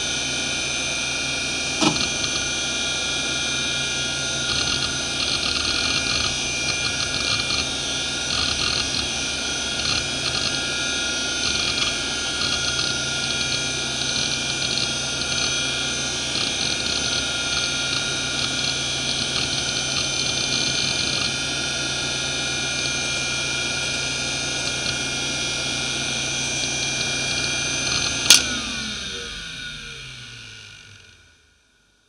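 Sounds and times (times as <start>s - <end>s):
hard drive spinning whine: 0.0s - 31.4s
sharp click: 28.2s - 28.6s.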